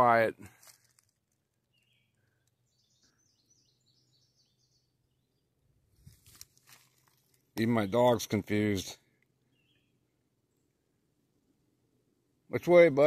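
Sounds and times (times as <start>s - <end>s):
soft rustles: 0.5s - 1.3s, 6.0s - 7.4s
faint bird chirps: 1.6s - 6.2s, 9.0s - 10.9s.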